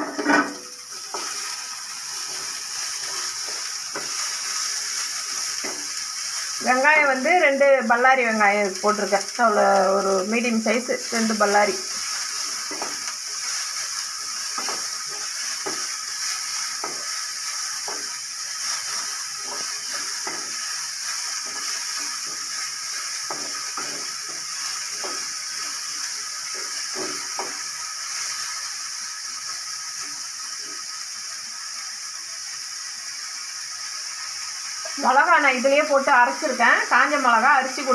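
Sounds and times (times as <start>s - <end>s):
onions sizzling in oil: 0.0s - 37.9s
wooden spatula scraping pan: 17.8s - 27.6s.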